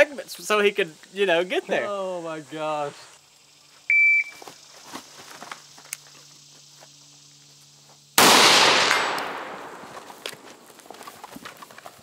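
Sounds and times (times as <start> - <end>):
loud rifle shot with echo: 8.2 - 10.0.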